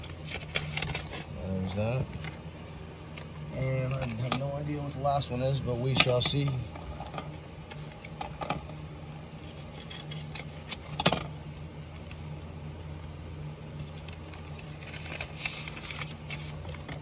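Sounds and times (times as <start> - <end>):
paper envelope rustling: 0.0 - 2.4, 9.4 - 11.1, 12.9 - 17.0
steady low hum: 0.0 - 17.0.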